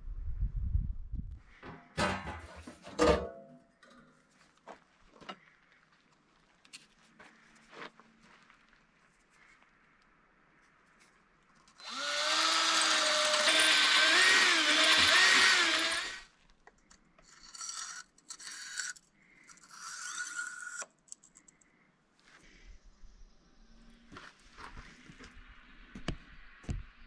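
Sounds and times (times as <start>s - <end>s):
cordless drill boring into brick: 11.8s - 16.3s, 17.2s - 20.9s.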